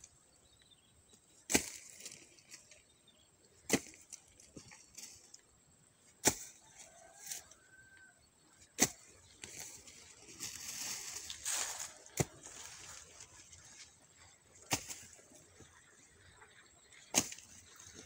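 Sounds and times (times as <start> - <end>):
soil scraping and dragging: 0.0 - 18.0
hoe striking damp earth: 1.2 - 2.9, 3.5 - 5.4, 6.1 - 7.5, 8.6 - 13.5, 14.6 - 15.9, 16.9 - 18.0.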